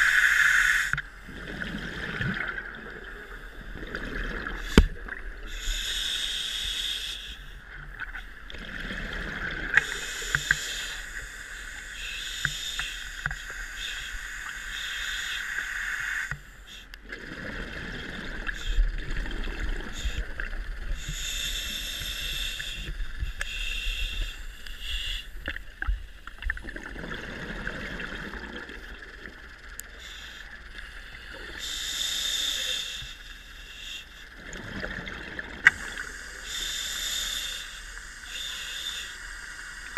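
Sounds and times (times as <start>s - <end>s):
diver inhaling through regulator: 4.5s - 7.6s, 9.7s - 16.9s, 21.0s - 25.4s, 31.5s - 34.3s, 35.6s - 39.9s.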